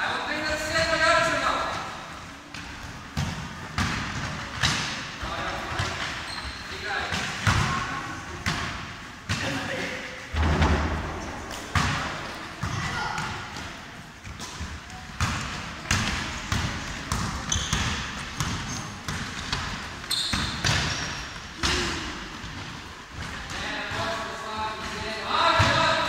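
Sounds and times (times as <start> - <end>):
basketball bouncing: 10.4 - 13.7, 14.3 - 21.9.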